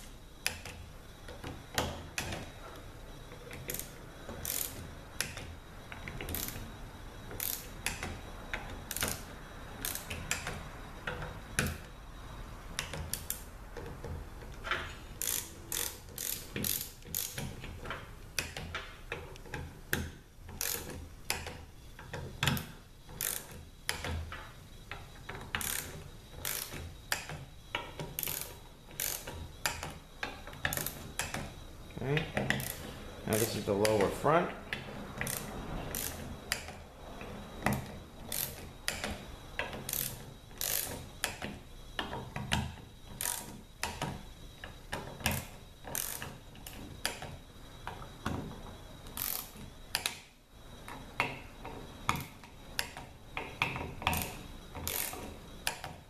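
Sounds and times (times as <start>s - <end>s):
torque wrench ratcheting clicks: 3.7s - 5.4s, 6.3s - 6.6s, 7.4s - 8.1s, 8.9s - 9.2s, 9.8s - 10.5s, 15.2s - 17.5s, 20.6s - 21.5s, 25.6s - 27.3s, 28.2s - 29.9s, 32.5s - 32.8s, 35.2s - 36.7s, 38.3s - 39.1s, 39.9s - 41.4s, 54.1s - 55.8s.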